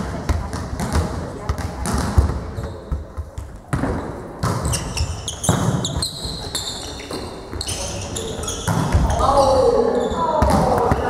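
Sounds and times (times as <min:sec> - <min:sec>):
volleyball hits: 0:00.0 - 0:06.0, 0:08.6 - 0:09.4, 0:10.4 - 0:11.0
sneakers squeaking on floor: 0:01.5 - 0:11.0.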